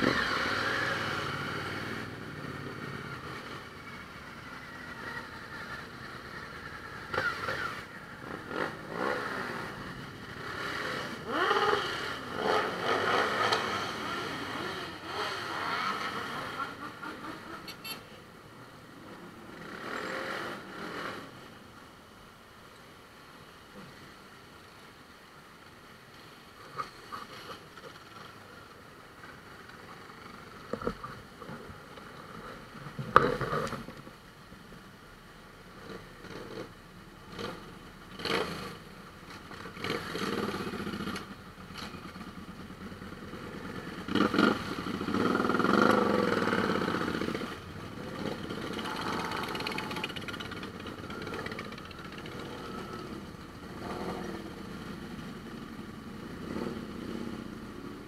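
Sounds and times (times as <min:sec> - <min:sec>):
motorcycles riding past: 0:00.0 - 0:18.0, 0:19.0 - 0:21.6, 0:39.4 - 0:58.0.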